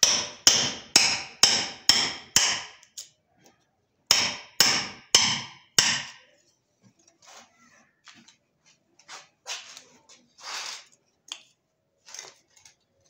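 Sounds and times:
hammer striking chisel on wood: 0:00.0 - 0:02.9, 0:04.1 - 0:06.2.

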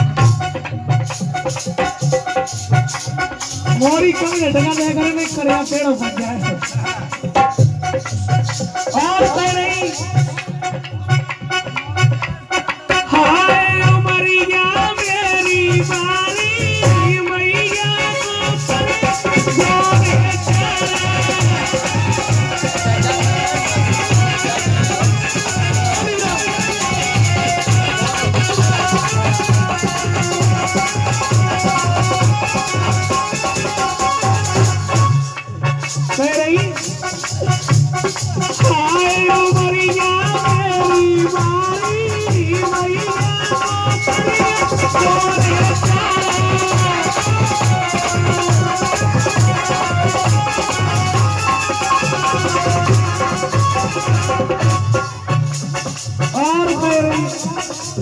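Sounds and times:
hand drum beats: 0:00.0 - 0:58.0
man singing into a microphone: 0:00.0 - 0:58.0
bending melody line: 0:16.8 - 0:35.0
shaker-like rattle: 0:35.8 - 0:58.0.

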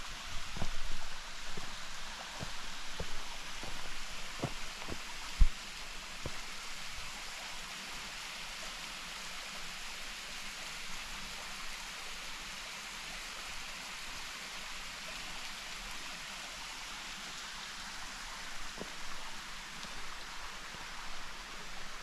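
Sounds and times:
waterfall rushing: 0:00.0 - 0:07.6.

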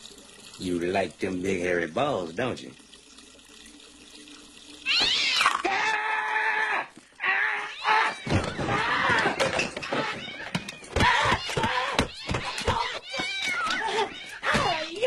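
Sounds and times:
cat yowling and screeching: 0:04.8 - 0:15.0.

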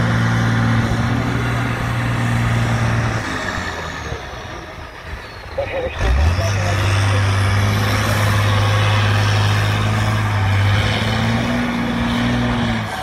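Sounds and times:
truck engine droning under load: 0:00.0 - 0:13.0.

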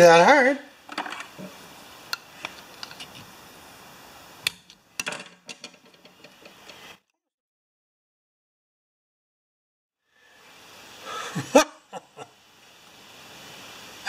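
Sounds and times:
small clicks and taps of metal parts: 0:02.1 - 0:03.2.

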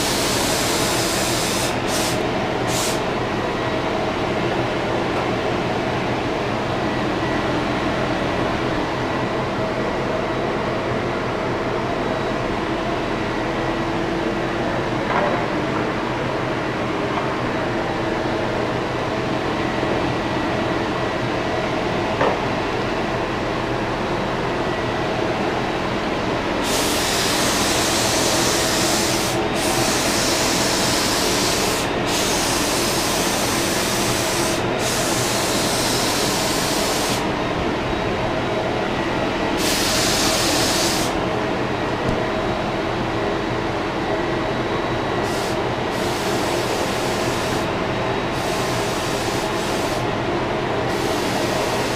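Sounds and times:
paint spray gun hissing: 0:00.0 - 0:03.1, 0:26.6 - 0:37.2, 0:39.6 - 0:41.2, 0:45.2 - 0:47.6, 0:50.9 - 0:51.9
steady machine drone: 0:00.0 - 0:51.9.

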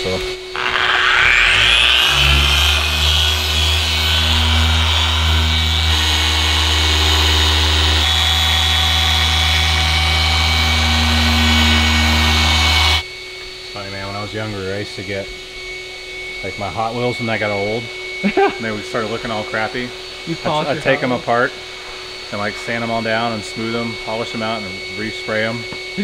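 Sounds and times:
mini polisher motor whine: 0:00.4 - 0:13.6, 0:15.4 - 0:22.4.

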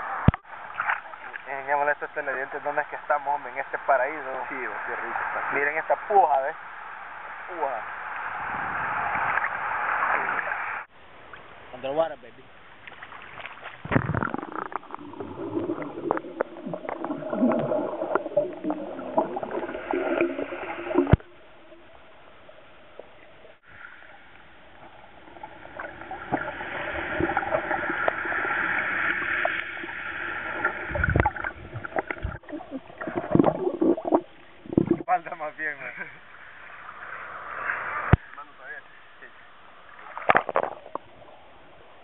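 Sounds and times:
underwater gurgling and bubbling: 0:13.8 - 0:23.8, 0:24.7 - 0:35.1.

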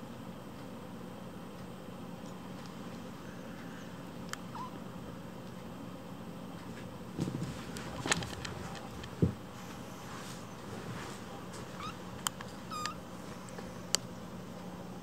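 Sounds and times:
kitten mewing: 0:04.5 - 0:04.8, 0:11.8 - 0:12.0, 0:12.6 - 0:13.0
light clicks and rustles: 0:06.5 - 0:13.7.

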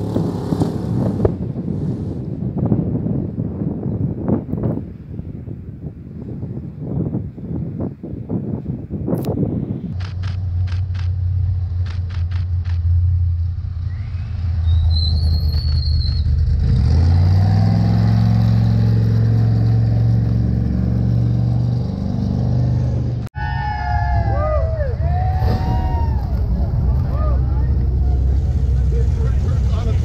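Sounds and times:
truck engine running: 0:10.0 - 0:23.3, 0:25.4 - 0:30.0.

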